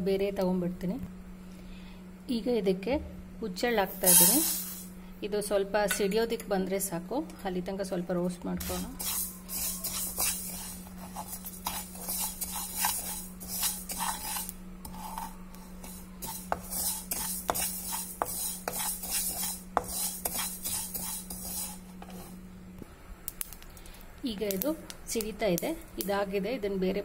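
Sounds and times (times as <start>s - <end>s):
steady low hum: 0.0s - 27.0s
spatula scraping seeds in pan: 3.9s - 4.9s, 8.6s - 22.4s.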